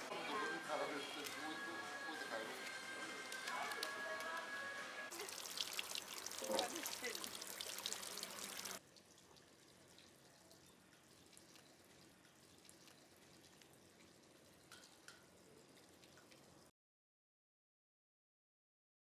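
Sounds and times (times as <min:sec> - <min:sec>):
water pouring into stone basin: 0:05.1 - 0:16.7.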